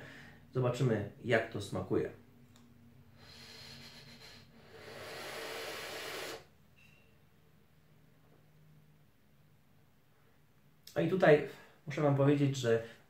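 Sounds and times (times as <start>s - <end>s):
air hissing through vape atomizer: 3.2s - 6.5s.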